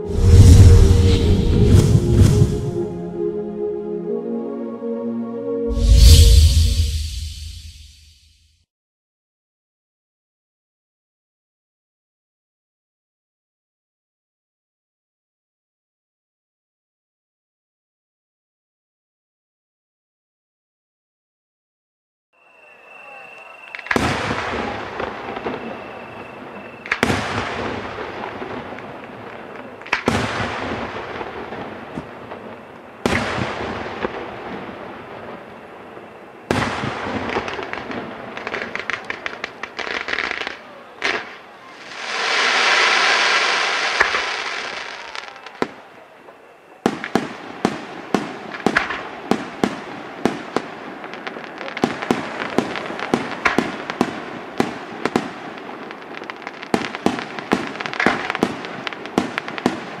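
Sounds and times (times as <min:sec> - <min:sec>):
firework crackling: 0:00.0 - 0:02.8, 0:22.6 - 0:45.9, 0:46.9 - 1:00.0
firework hiss: 0:00.0 - 0:02.8, 0:41.8 - 0:45.6.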